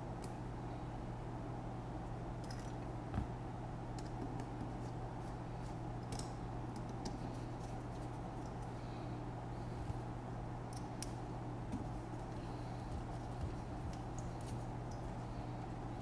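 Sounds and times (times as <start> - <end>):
steady low hum: 0.0 - 16.0
small parts clicking and tapping: 6.0 - 7.8.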